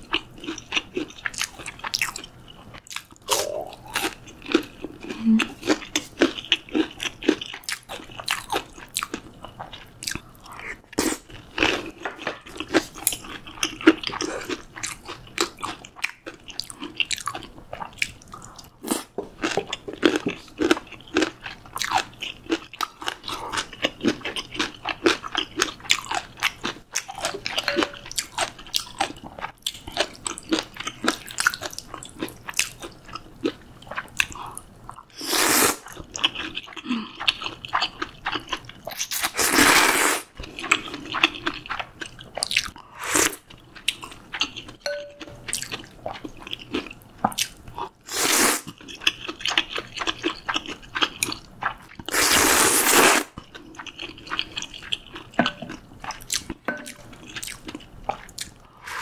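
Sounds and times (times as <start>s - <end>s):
chewing and crunching: 0.0s - 35.1s, 35.8s - 39.4s, 40.3s - 52.3s, 53.2s - 59.0s
noodle slurps: 39.2s - 40.3s, 52.1s - 53.3s, 58.7s - 59.0s.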